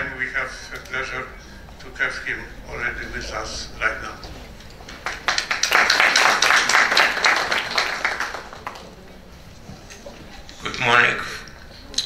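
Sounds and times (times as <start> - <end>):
audience applauding: 4.6 - 9.1.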